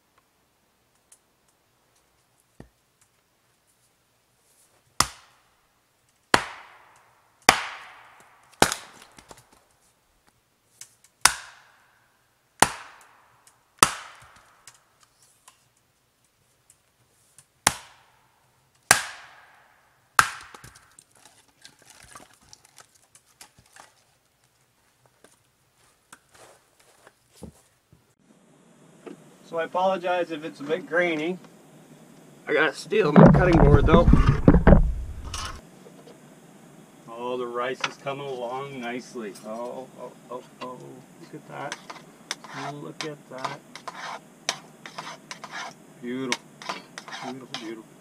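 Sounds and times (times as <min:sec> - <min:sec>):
axe splitting firewood: 0:06.3 - 0:06.8, 0:07.5 - 0:09.5, 0:11.2 - 0:11.7, 0:12.6 - 0:13.0, 0:13.8 - 0:14.5, 0:17.6 - 0:18.0, 0:18.9 - 0:19.4, 0:20.2 - 0:24.0, 0:33.1 - 0:35.6
split wood pieces clattering: 0:20.5 - 0:24.1.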